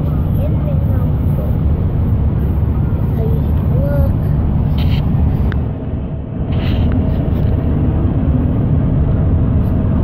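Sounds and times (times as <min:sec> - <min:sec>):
car engine and tyre rumble: 0:00.0 - 0:10.0.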